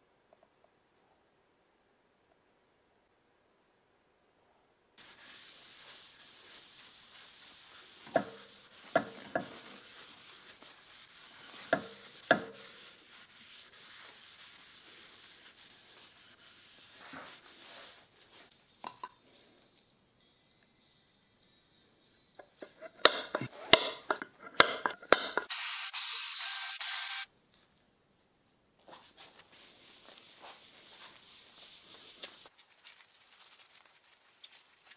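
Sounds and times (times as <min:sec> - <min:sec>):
cloth pad scrubbing wood: 0:05.0 - 0:18.5.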